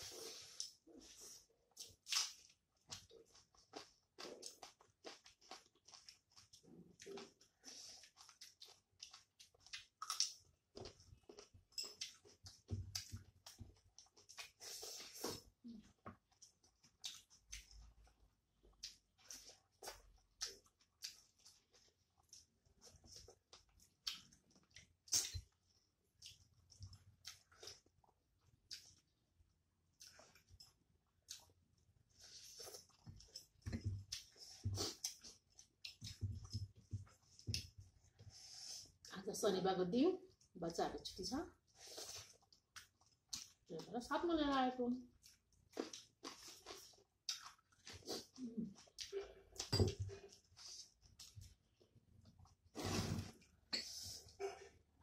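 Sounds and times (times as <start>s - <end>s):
soft chewing: 0.0s - 39.2s, 40.2s - 44.1s, 45.0s - 52.8s.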